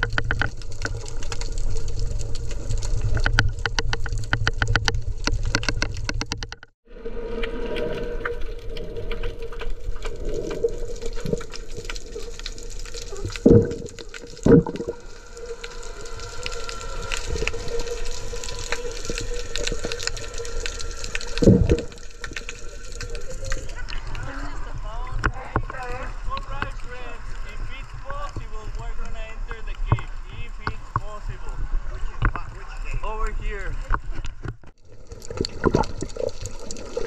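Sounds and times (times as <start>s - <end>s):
underwater clicks: 0.0s - 6.7s, 8.7s - 24.3s
steady underwater hum: 6.9s - 37.0s.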